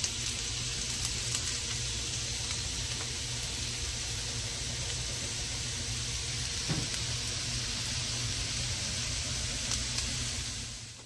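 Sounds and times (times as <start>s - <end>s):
potatoes sizzling in a skillet: 0.0s - 11.0s.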